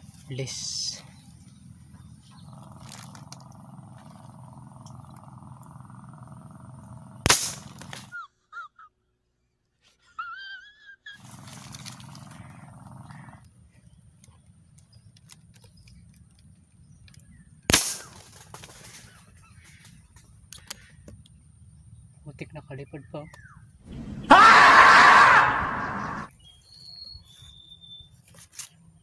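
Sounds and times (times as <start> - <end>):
bird chirping: 0.0 - 7.3, 11.1 - 17.7, 18.9 - 24.4, 25.6 - 29.0
marble gun shots: 7.2 - 8.1, 17.6 - 19.0.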